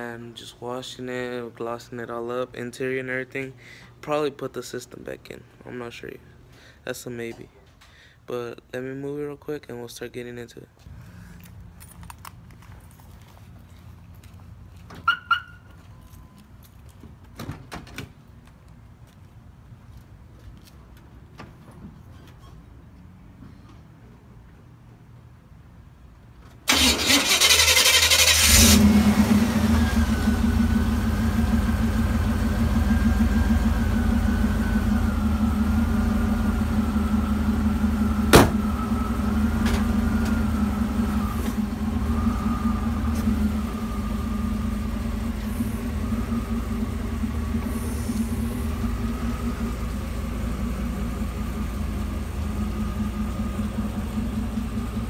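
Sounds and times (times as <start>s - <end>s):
truck engine starting and idling: 26.6s - 55.0s.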